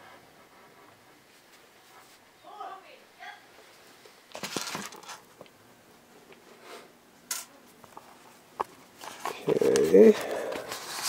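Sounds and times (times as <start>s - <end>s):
rustling: 7.7s - 11.0s.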